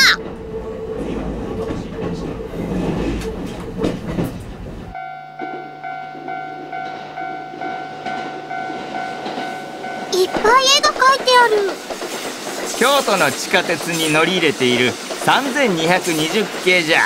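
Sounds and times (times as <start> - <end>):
electric train hum: 0.0 - 17.0
train wheels rumbling on rails: 0.0 - 17.0.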